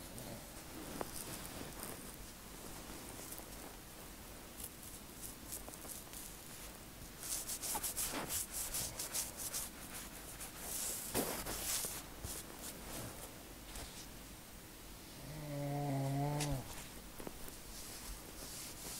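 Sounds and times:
fingertips rubbing braided hair: 0:00.8 - 0:03.8, 0:04.5 - 0:14.1, 0:16.4 - 0:18.9.

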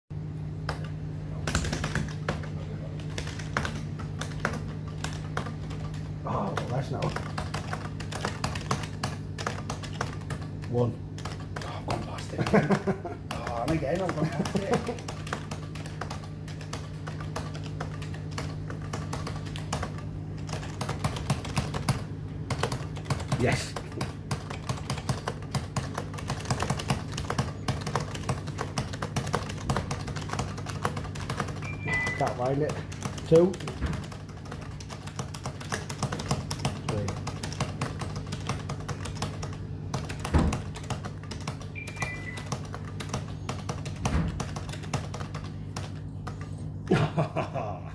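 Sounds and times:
steady low hum: 0:00.1 - 0:47.9
push-buttons clicking rapidly: 0:01.5 - 0:46.5
brief high beep: 0:31.7 - 0:32.2.

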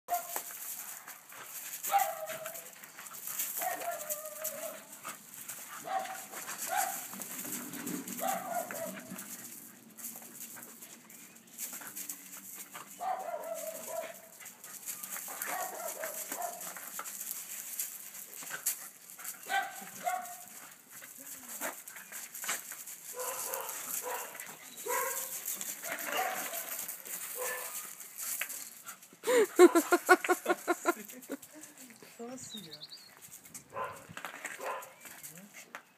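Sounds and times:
dogs giving high-pitched cries: 0:03.6 - 0:05.0.

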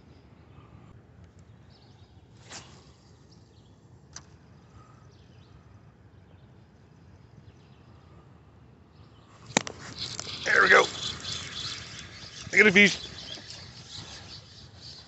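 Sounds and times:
faint high chirps: 0:09.4 - 0:15.0.

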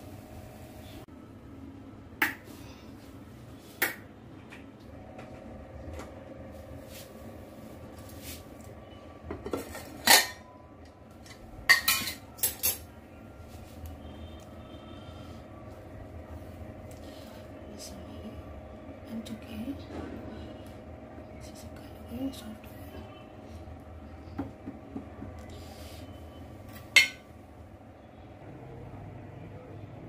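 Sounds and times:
low steady hum: 0:00.0 - 0:30.0
metal spoon clinking on cookware: 0:09.4 - 0:10.5, 0:11.2 - 0:12.9.

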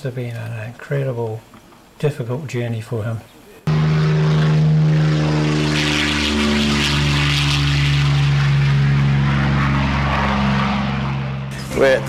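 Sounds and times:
propeller aircraft engine drone: 0:03.7 - 0:12.0.

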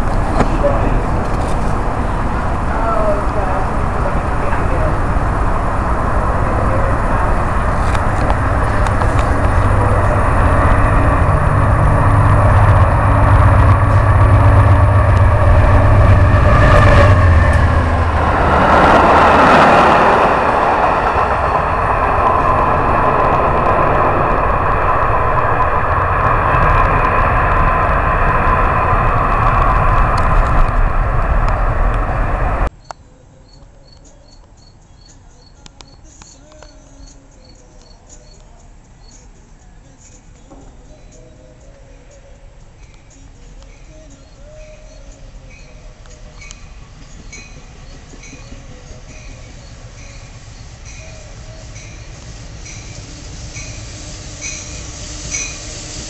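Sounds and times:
train rushing past: 0:00.0 - 0:32.7, 0:40.6 - 0:56.0
insects chirping: 0:32.8 - 0:56.0.

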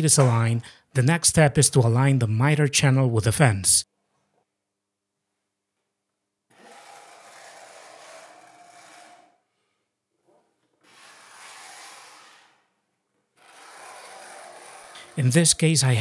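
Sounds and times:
metal jig rubbing along channel: 0:06.5 - 0:09.4, 0:10.8 - 0:12.7, 0:13.4 - 0:15.8.

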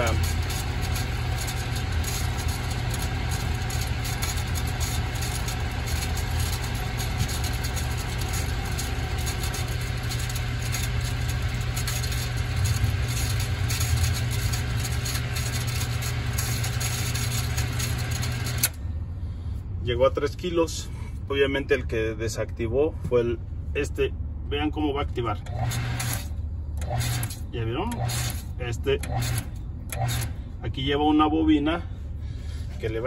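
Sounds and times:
water pump humming: 0:00.0 - 0:18.8.

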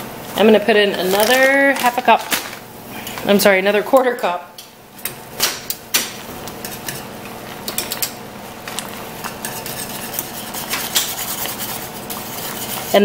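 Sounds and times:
whisk rattling in metal saucepan: 0:09.2 - 0:13.0.

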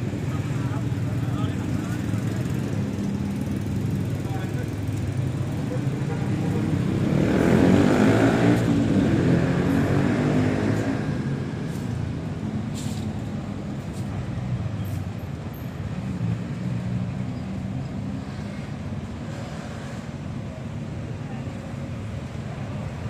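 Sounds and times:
hum of passing traffic: 0:00.0 - 0:23.0
vehicle passing close by: 0:06.5 - 0:13.6.

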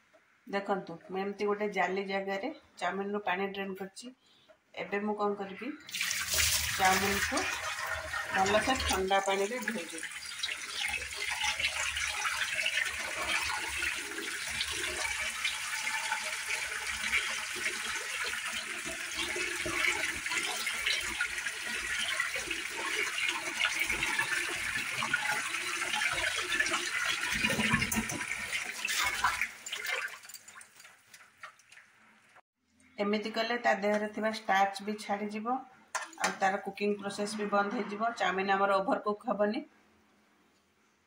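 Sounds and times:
tap water splashing in colander: 0:05.9 - 0:32.0.

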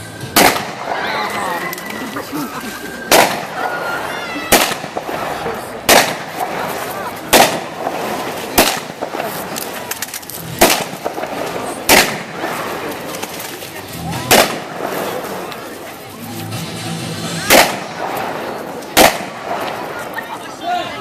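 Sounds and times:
crowd voices: 0:00.0 - 0:21.0
simulated gunfire bangs: 0:00.3 - 0:01.0, 0:03.1 - 0:03.6, 0:04.5 - 0:06.6, 0:07.3 - 0:09.3, 0:10.5 - 0:12.8, 0:14.3 - 0:15.0, 0:17.4 - 0:19.9.

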